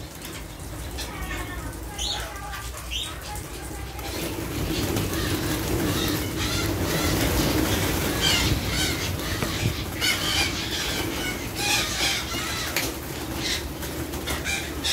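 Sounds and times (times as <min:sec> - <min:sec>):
parakeets squawking: 0:00.1 - 0:14.9.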